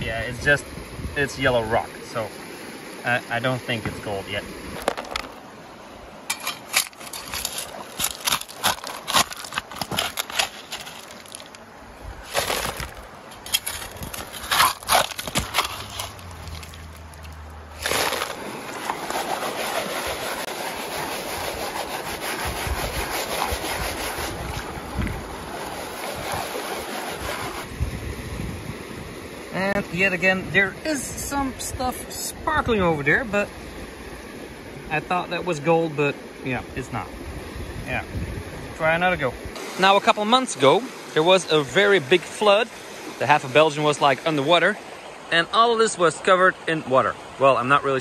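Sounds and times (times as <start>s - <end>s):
stones and gravel clattering: 4.7s - 5.4s, 6.3s - 11.6s, 12.2s - 19.6s.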